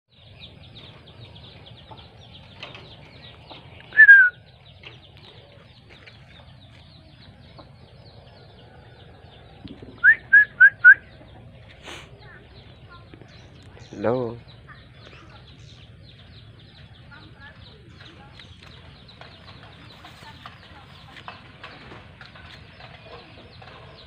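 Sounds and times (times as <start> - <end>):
small birds chirping: 0.1 - 24.0
loud whistled notes: 4.0 - 4.4.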